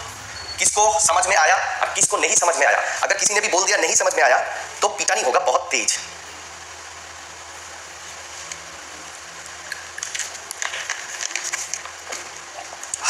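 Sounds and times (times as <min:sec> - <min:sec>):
room noise hiss and hum: 0:00.0 - 0:13.0
faint clicks and rustles: 0:08.1 - 0:13.0.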